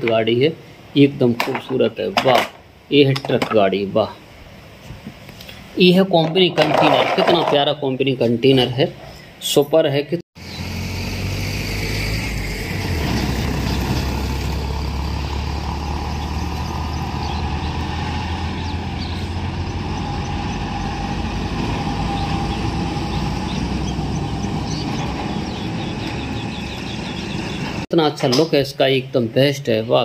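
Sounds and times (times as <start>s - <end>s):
road noise: 0.0s - 28.6s
lorry engine rumbling: 10.4s - 27.9s.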